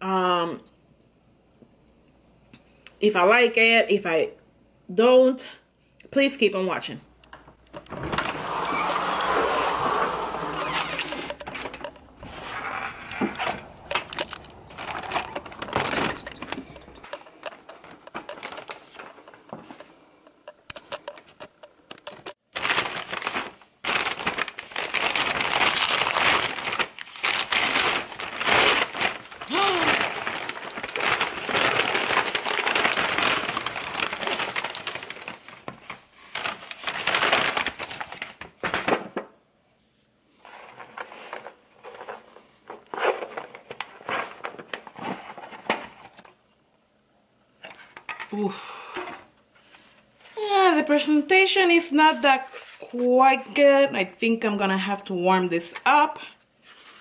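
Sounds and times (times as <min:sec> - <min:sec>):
paper bag crinkling: 0:07.7 - 0:39.2.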